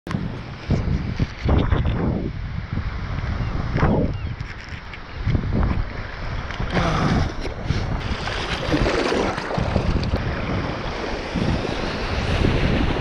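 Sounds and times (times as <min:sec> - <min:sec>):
wind buffeting microphone: 0:00.1 - 0:13.0
water splashing and sloshing: 0:04.4 - 0:13.0.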